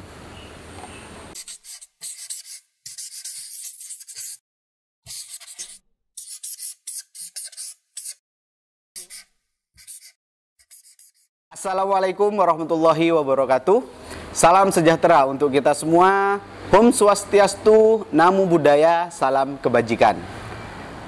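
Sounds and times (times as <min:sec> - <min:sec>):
marker scratching on paper: 0:01.3 - 0:04.4, 0:05.0 - 0:08.2, 0:09.0 - 0:11.3.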